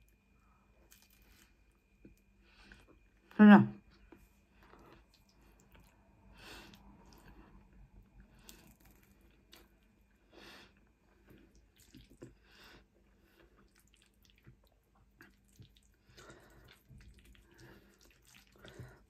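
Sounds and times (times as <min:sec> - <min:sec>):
person chewing: 0:00.8 - 0:02.9, 0:04.1 - 0:06.0, 0:08.2 - 0:09.9, 0:10.8 - 0:19.0.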